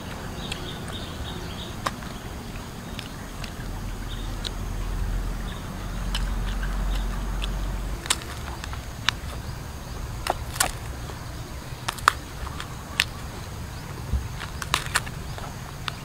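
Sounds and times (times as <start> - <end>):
seed pod snapping and cracking: 1.8 - 3.8, 6.0 - 13.4, 14.3 - 16.0.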